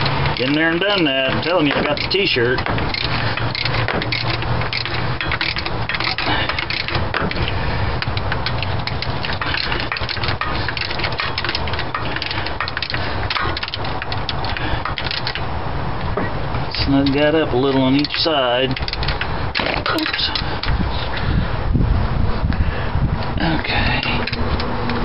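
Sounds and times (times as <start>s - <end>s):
socket ratchet clicking: 0.0s - 15.4s, 17.8s - 20.8s
steady low hum: 0.0s - 25.0s.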